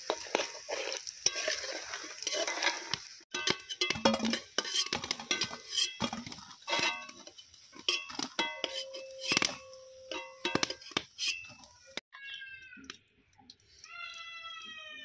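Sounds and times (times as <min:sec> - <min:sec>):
metal spatula clinking on wok: 0:02.3 - 0:11.7.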